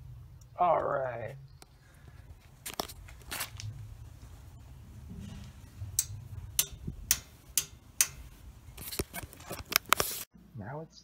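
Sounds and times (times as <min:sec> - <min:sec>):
low steady rumble: 0:00.0 - 0:08.8.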